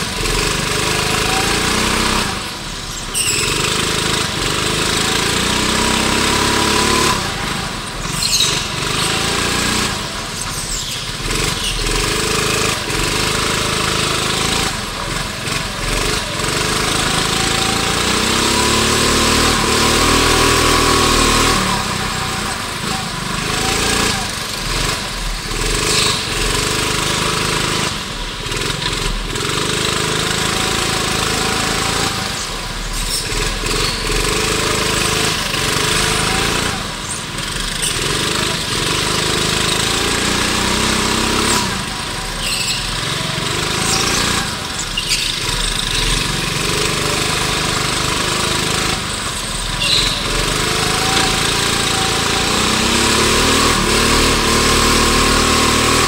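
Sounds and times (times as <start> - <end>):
go-kart engine revving: 0.0 - 56.0.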